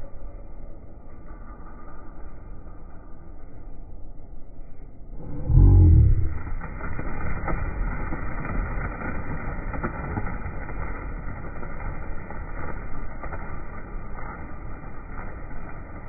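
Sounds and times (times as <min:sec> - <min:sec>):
slowed pigeon wingbeats flutter: 0:05.2 - 0:16.0.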